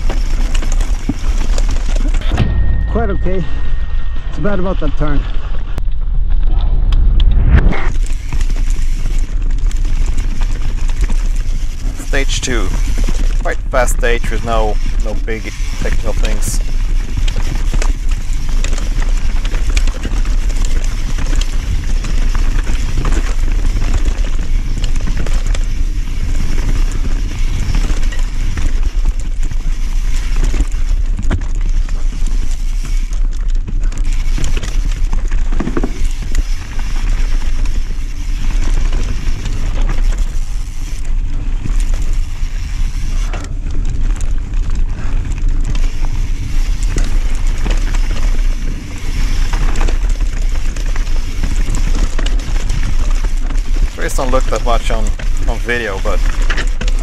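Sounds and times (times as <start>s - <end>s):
bike rattling and clattering: 0.0s - 7.0s, 7.8s - 57.0s
bike tyres over stones: 0.0s - 57.0s
wind on microphone: 2.0s - 30.1s.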